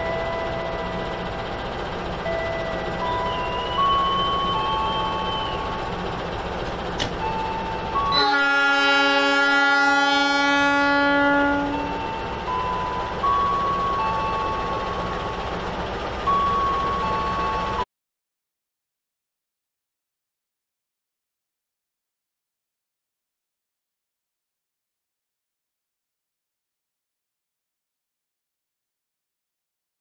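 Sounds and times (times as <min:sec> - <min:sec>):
electronic tone melody: 0:00.0 - 0:01.6, 0:02.2 - 0:06.1, 0:07.2 - 0:15.1, 0:16.2 - 0:17.8
locomotive air horn: 0:08.0 - 0:12.3.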